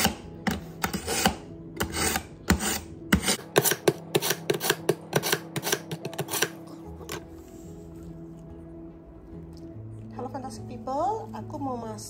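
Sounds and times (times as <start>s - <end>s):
knife scraping through sharpener: 0.0s - 7.2s.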